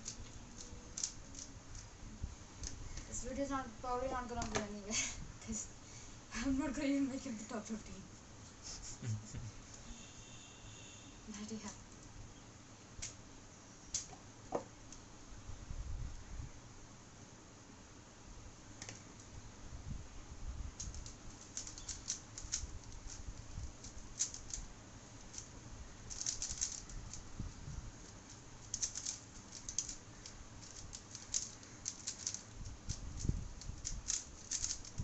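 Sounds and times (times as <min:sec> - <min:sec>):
speed cube layers clicking: 0:00.0 - 0:01.9, 0:20.8 - 0:35.0.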